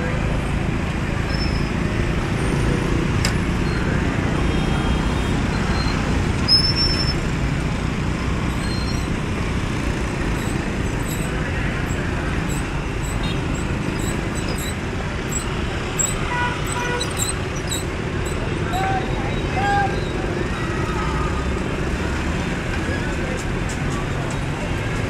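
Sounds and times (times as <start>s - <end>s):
motorbike and scooter traffic rumble: 0.0s - 25.0s
short high squeal: 1.3s - 1.8s, 5.5s - 7.2s, 8.5s - 9.2s, 10.4s - 18.4s.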